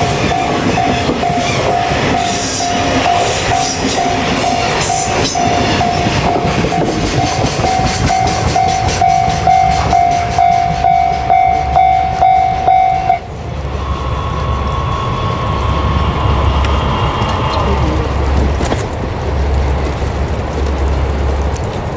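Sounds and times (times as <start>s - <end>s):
freight wagons clattering past: 0.0s - 13.2s
level-crossing warning bell ringing: 0.0s - 17.8s.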